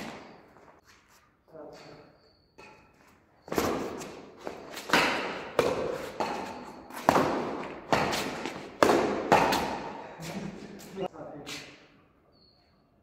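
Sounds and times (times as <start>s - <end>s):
rackets hitting shuttlecock: 2.6s - 10.0s.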